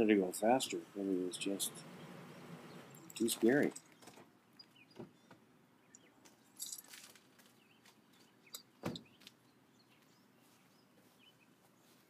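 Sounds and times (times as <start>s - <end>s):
short rustle: 6.3s - 8.0s.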